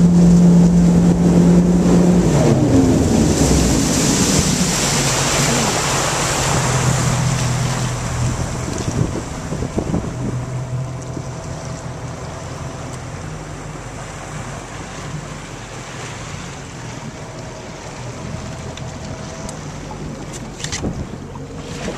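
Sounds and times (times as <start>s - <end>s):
motorboat engine humming: 0.0s - 21.9s
water rushing from wake: 0.0s - 21.9s
wind buffeting microphone: 7.7s - 12.1s, 20.6s - 21.9s.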